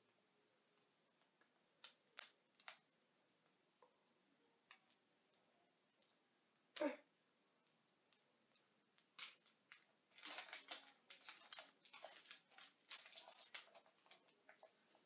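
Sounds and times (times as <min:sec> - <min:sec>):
packaging rustling: 0:10.1 - 0:15.0.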